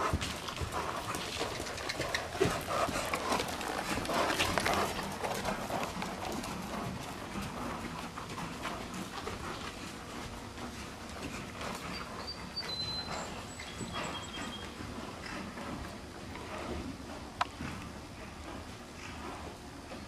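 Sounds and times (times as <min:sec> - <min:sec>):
horse hoofbeats on sand: 0:00.0 - 0:20.0.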